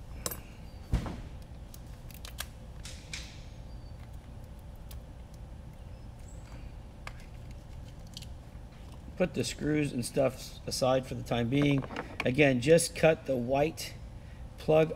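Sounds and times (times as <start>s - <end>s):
plastic cases clicking and knocking: 11.5s - 12.3s.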